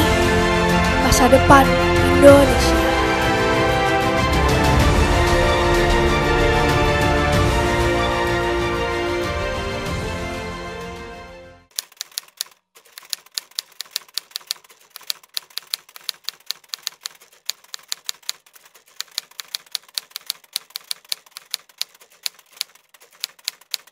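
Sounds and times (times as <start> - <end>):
music: 0.0 - 11.7
typewriter keys clacking: 11.7 - 23.9.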